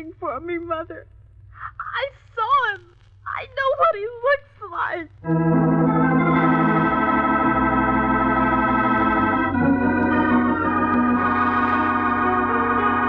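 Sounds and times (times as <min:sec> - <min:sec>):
organ sustained chords: 0:05.2 - 0:13.0.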